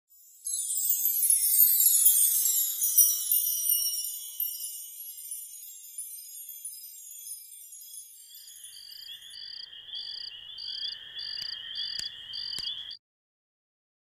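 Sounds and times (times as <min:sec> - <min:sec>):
tinkling chime: 0:00.1 - 0:10.4
crickets chirping: 0:01.3 - 0:13.0.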